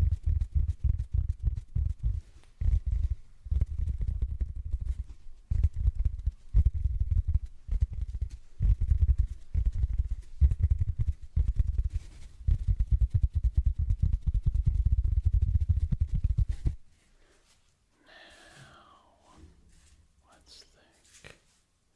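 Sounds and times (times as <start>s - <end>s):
sponge scrubbing microphone grille: 0.0s - 16.8s.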